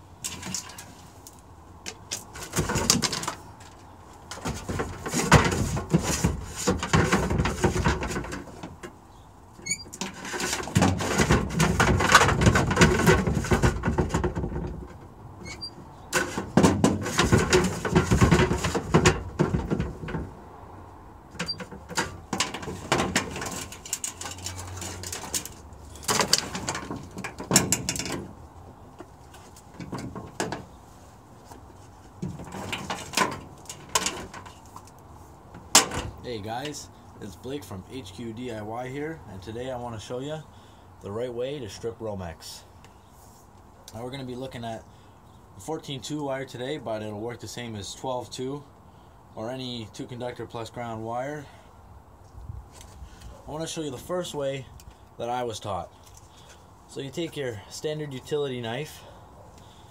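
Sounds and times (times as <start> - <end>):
rustling and scraping: 0.0 - 40.2, 42.8 - 44.6, 52.2 - 59.9
sharp clicks and knocks: 21.3 - 28.4.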